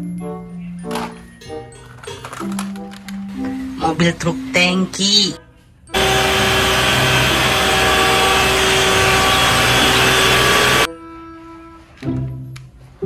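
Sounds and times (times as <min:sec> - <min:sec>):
truck engine hum: 0:06.0 - 0:10.9.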